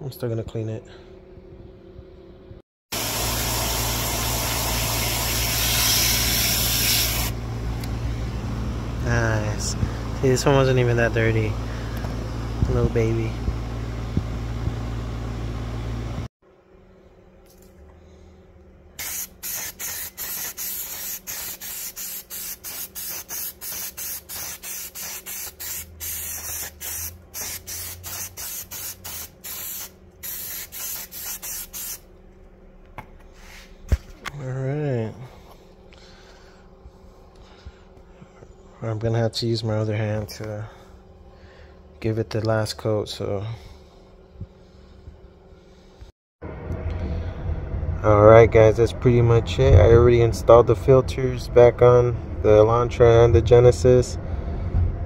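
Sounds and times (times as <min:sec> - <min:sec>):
aerosol spray hissing: 0:03.0 - 0:07.4, 0:19.0 - 0:32.0
hose water spraying: 0:03.0 - 0:07.4.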